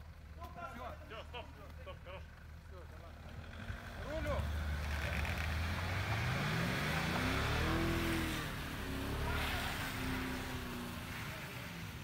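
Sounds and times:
engine revving under load: 3.4 - 11.2.

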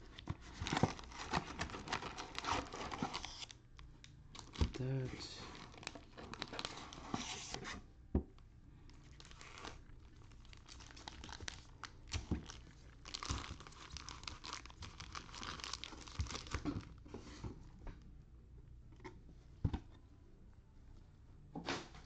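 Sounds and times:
foil card packs crinkling: 0.4 - 3.6, 4.4 - 7.5, 9.0 - 17.0.

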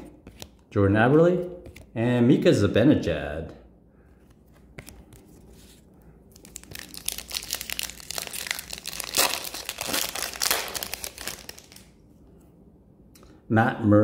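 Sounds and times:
foil wrapper crinkling: 6.4 - 11.9.

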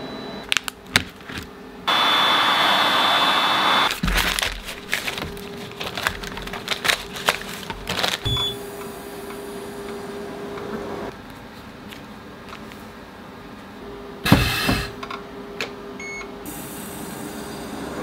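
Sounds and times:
heat gun blowing with whistle: 1.9 - 3.9
plastic film crinkling: 3.9 - 8.3.

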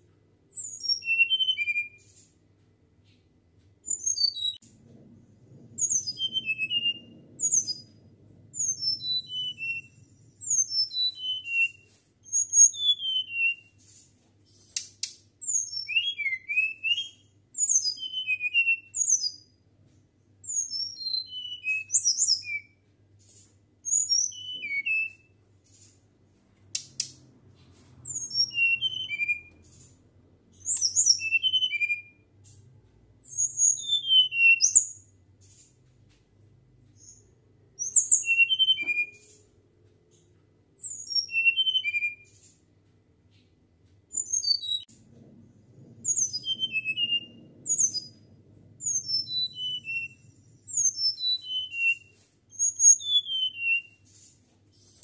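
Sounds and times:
bird whistling song: 0.5 - 2.1, 3.8 - 4.6, 5.8 - 8.0, 8.6 - 13.9, 15.4 - 19.6, 20.4 - 22.8, 23.8 - 25.4, 28.0 - 29.8, 30.5 - 32.3, 33.2 - 35.2, 37.0 - 39.4, 40.8 - 42.4, 44.1 - 44.9, 46.0 - 54.2.

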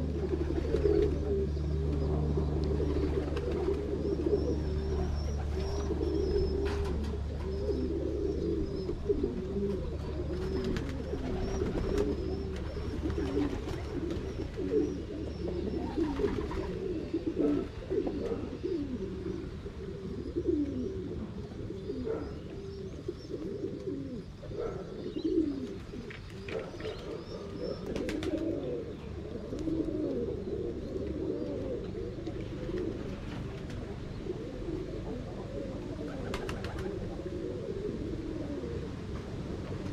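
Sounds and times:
pigeons cooing: 0.0 - 39.9
wing flaps fluttering: 3.1 - 3.9, 36.2 - 37.0.

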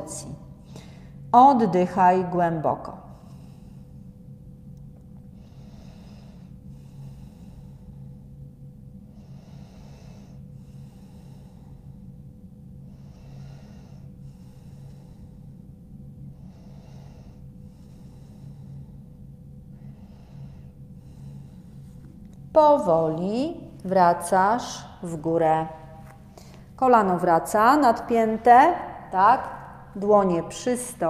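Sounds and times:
steady low hum: 0.0 - 31.0
person breathing through nose: 5.4 - 8.3, 9.1 - 12.2, 12.9 - 15.6, 16.4 - 22.0.

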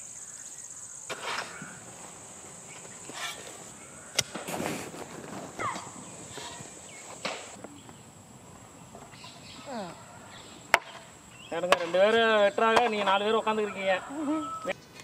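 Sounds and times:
hoe and crowbar digging soil: 1.1 - 7.5
footsteps on grass: 1.7 - 7.6.

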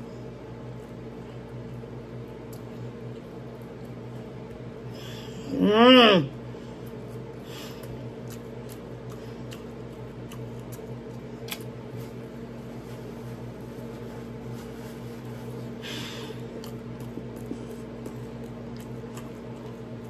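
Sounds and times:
steady electrical hum: 0.0 - 20.0
person chewing: 6.7 - 11.8, 16.2 - 20.0.

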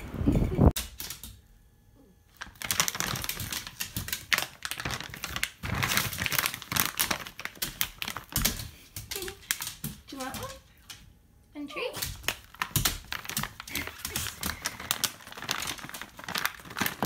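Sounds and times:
dog toenails clicking on wooden floor: 2.7 - 5.3, 6.0 - 11.1, 12.0 - 17.0.

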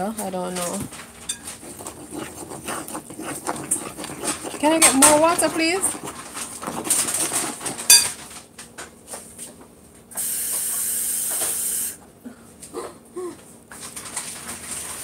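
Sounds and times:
fork scraping glass bowl: 1.2 - 8.2.

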